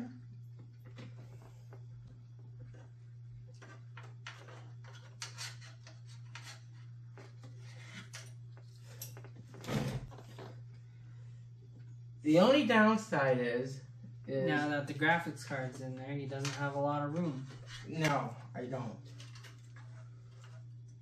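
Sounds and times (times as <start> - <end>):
steady low hum: 0.0 - 21.0
clicks and scrapes of parts handled: 3.5 - 9.5, 19.1 - 21.0.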